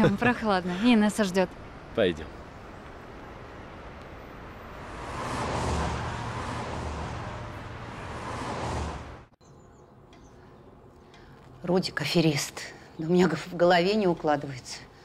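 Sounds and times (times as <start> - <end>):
car driving past: 4.5 - 9.4.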